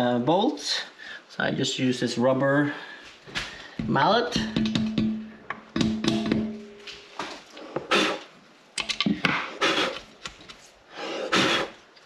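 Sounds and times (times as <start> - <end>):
scrapes of hand work: 7.2 - 8.3, 9.2 - 11.8.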